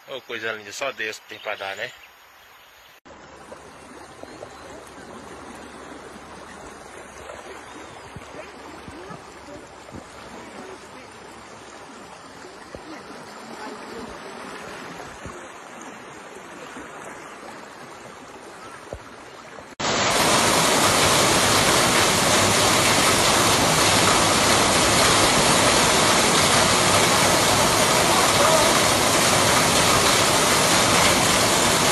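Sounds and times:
water running across road: 3.1s - 31.9s
rushing floodwater: 3.2s - 31.9s
torrential rain pouring: 8.1s - 15.5s, 19.7s - 31.9s.

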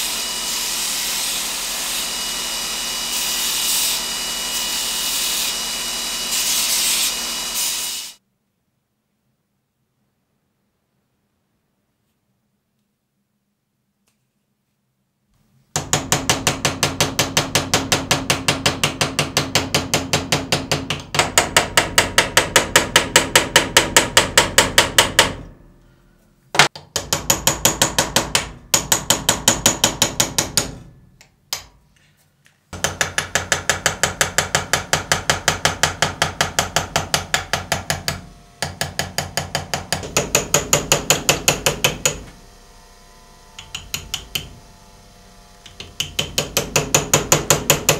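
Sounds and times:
small hammer tapping chisel on steel: 43.6s - 44.5s.

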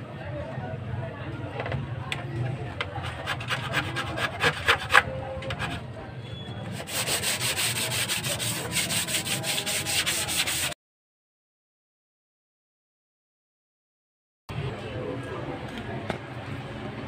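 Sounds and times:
hand rubbing glass screen: 2.9s - 5.8s, 6.7s - 10.8s.

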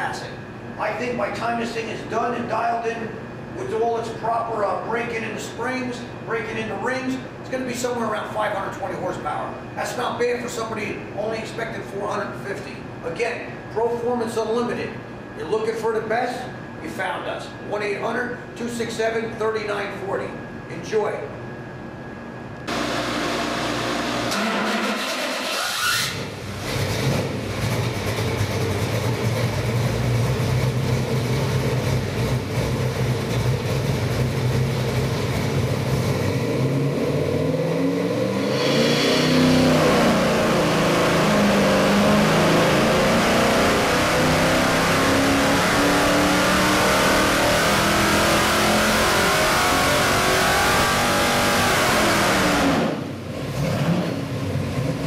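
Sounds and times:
engine revving on dynamometer: 22.7s - 32.8s, 33.7s - 55.0s.

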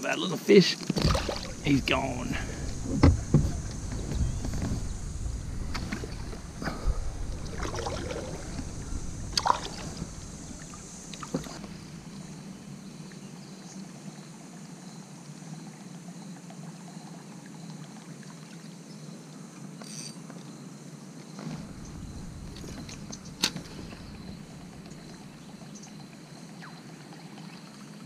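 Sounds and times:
faint background hiss: 0.0s - 28.0s
knocks in a canoe: 0.8s - 5.0s
wind rumble on microphone: 1.0s - 13.1s, 21.4s - 26.0s.

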